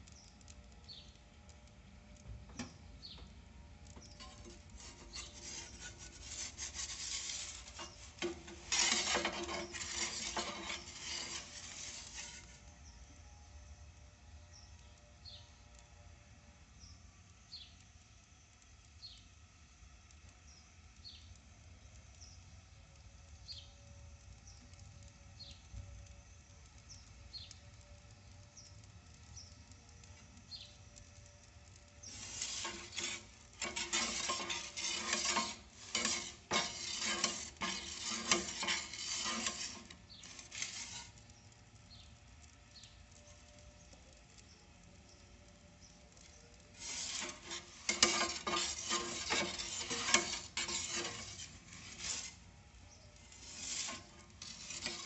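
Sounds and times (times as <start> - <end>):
choppy scraping and rattling: 4.0 - 12.6, 32.0 - 41.2, 46.8 - 52.4, 53.2 - 55.0.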